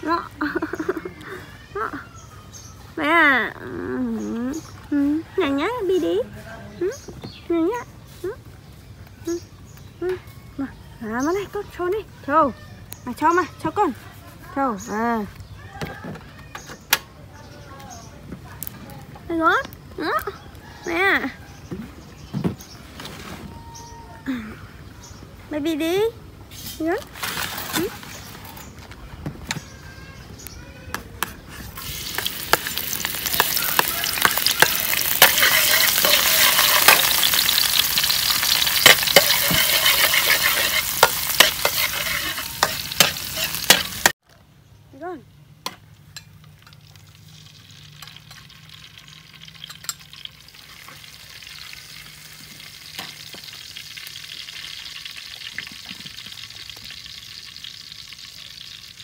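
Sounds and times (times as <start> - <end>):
metal spatula scraping a wok: 31.5 - 44.2
garlic sizzling in hot oil: 31.6 - 44.2, 46.1 - 59.0.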